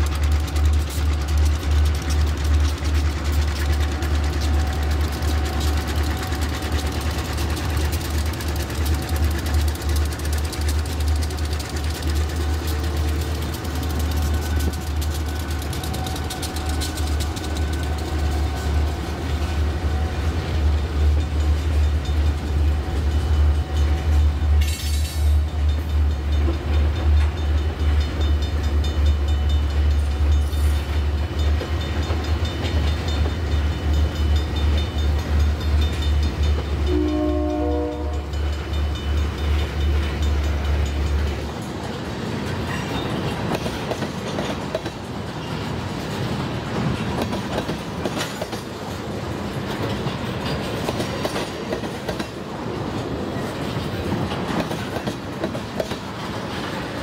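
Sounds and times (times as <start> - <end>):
train wheels clattering on rail: 0.0 - 57.0
train horn: 36.8 - 38.3.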